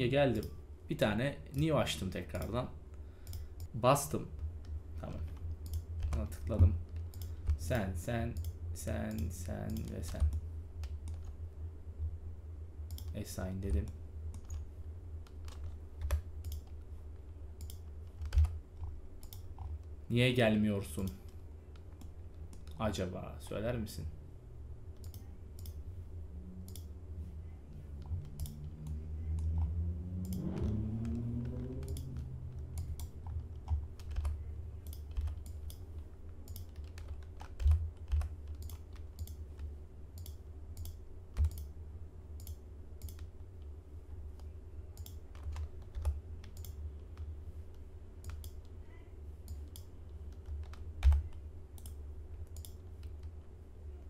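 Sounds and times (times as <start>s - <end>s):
steady low hum: 0.0s - 54.0s
keyboard and mouse clicking: 3.2s - 3.7s, 4.3s - 11.4s, 12.9s - 13.2s, 13.8s - 16.9s, 17.6s - 20.0s, 25.0s - 25.8s, 26.6s - 26.9s, 28.0s - 41.7s, 42.4s - 43.7s, 44.3s - 48.7s, 49.4s - 53.3s.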